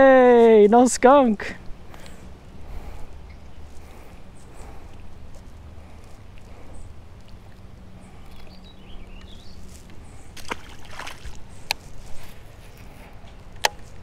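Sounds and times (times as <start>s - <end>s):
low steady hum: 0.0s - 14.0s
splash in water: 10.4s - 11.4s
water sloshing against boat hull: 10.4s - 11.7s.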